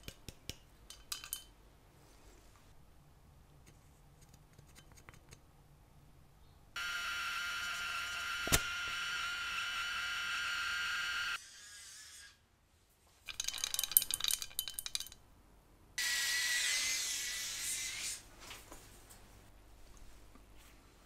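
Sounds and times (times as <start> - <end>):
small metallic clinks and rattles: 0.8 - 1.6, 13.3 - 15.2.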